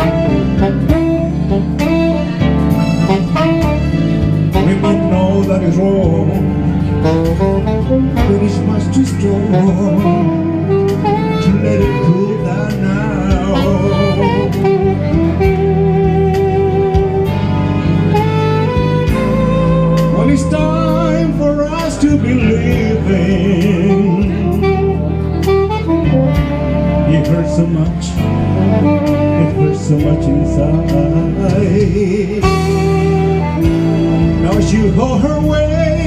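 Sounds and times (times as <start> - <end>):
band playing guitar and bass: 0.0 - 36.0
saxophone solo: 0.0 - 36.0.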